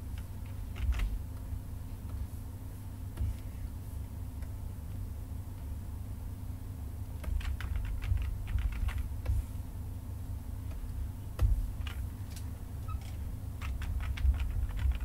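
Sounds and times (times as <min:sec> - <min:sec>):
low steady hum: 0:00.0 - 0:15.0
keyboard and mouse clicking: 0:07.2 - 0:09.4, 0:11.4 - 0:15.0.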